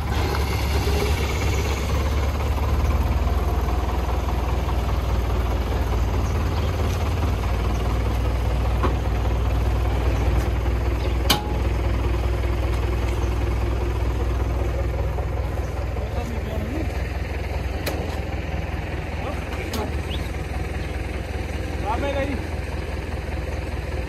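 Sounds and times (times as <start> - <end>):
truck engine idling: 0.0 - 24.0.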